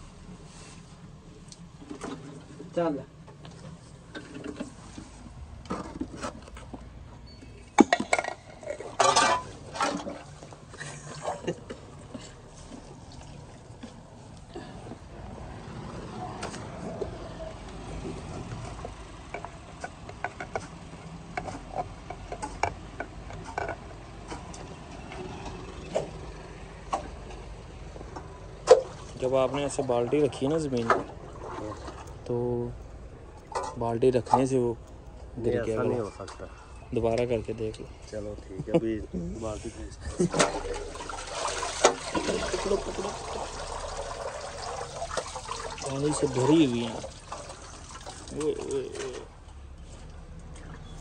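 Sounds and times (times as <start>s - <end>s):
metal bucket clanking: 7.7s - 12.4s, 40.2s - 49.4s
muddy water splashing: 8.6s - 16.0s, 28.6s - 32.2s, 40.2s - 51.0s.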